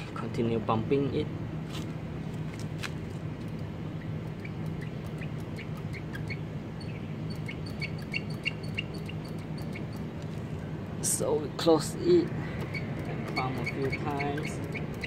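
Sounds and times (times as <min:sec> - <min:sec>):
low background hum: 0:00.0 - 0:15.0
small bird chirping: 0:03.5 - 0:10.4, 0:12.0 - 0:15.0.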